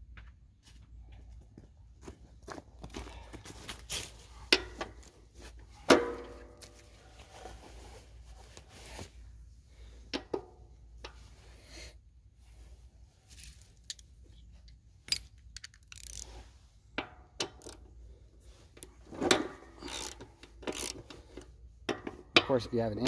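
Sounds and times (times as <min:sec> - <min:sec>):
metal socket clinking on metal: 0:15.0 - 0:16.2.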